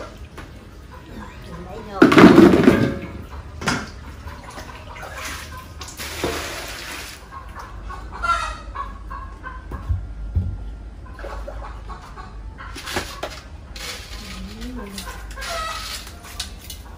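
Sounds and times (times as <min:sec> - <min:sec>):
chickens clucking: 0:00.0 - 0:16.9
water splashing into metal basin: 0:01.1 - 0:07.2.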